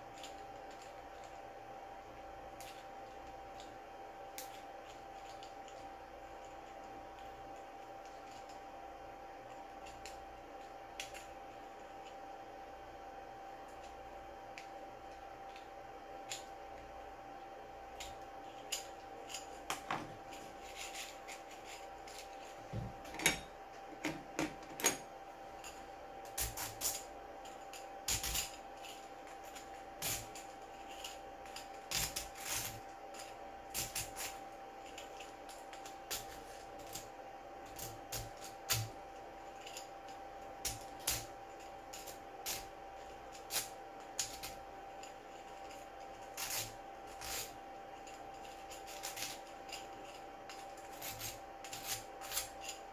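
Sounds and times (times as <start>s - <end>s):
faint steady hum: 0.0s - 52.9s.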